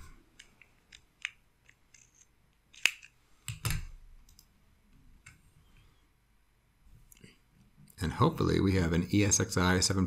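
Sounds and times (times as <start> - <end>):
hands handling hardware clicks: 0.3 - 4.5.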